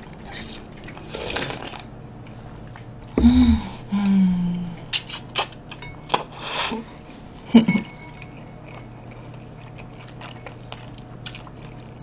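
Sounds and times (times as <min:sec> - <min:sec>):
person slurping noodles: 0:01.0 - 0:01.8
quiet chewing: 0:08.1 - 0:12.0.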